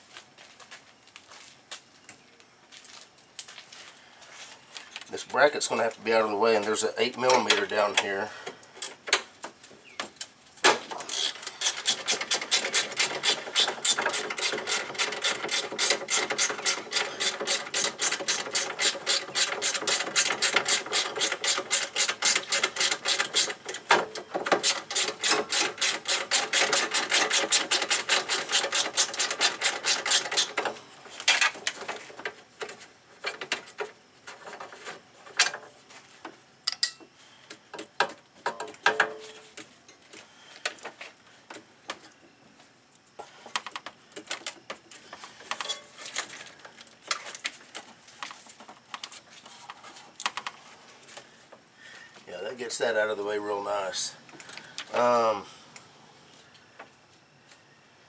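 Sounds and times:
ratchet wrench clicking: 11.1s - 23.6s, 24.6s - 30.6s
tool and bolt knocks: 37.8s - 39.4s.

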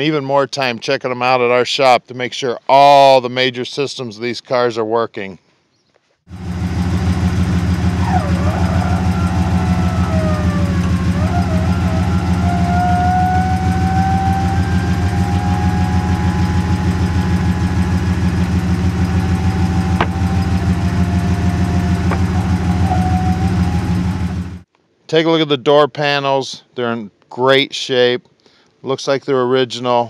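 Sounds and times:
car engine idling: 6.3s - 24.6s
thin whine: 6.3s - 24.6s.

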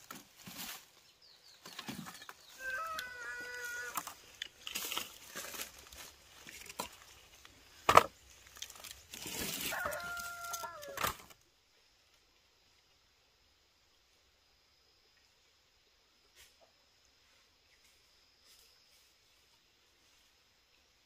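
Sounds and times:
rooster crowing: 2.6s - 4.1s, 9.5s - 11.2s.

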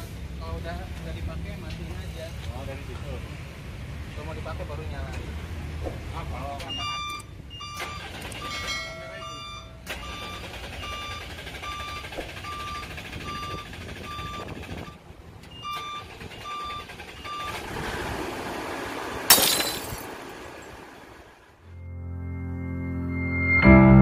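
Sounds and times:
warning beeper short beeps: 6.6s - 14.5s.

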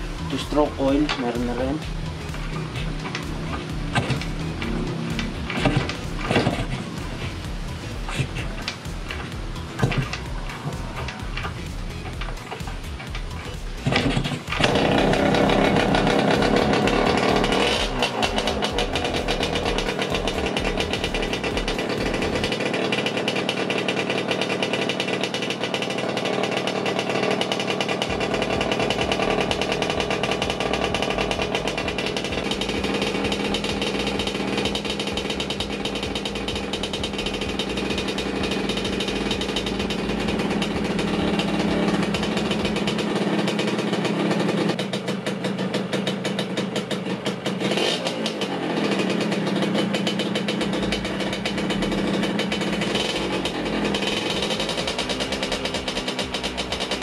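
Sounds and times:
loud exhaust: 0.0s - 57.0s
two-stroke engine running: 0.0s - 57.0s.

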